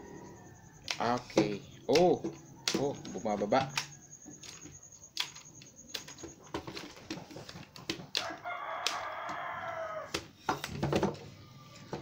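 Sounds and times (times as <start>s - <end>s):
rooster crowing: 0.0s - 1.0s, 8.1s - 10.2s.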